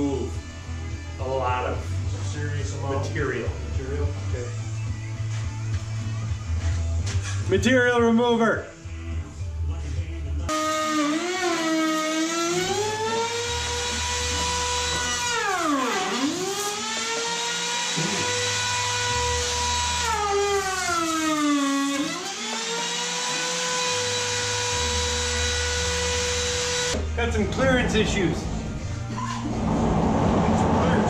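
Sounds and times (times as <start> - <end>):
power tool motor whining: 10.5 - 27.0.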